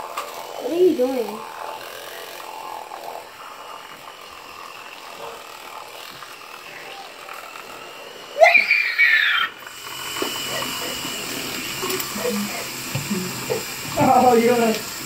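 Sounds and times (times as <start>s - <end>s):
electric toothbrush buzzing: 0.0s - 15.0s
high-pitched vocal squeal: 8.3s - 9.6s.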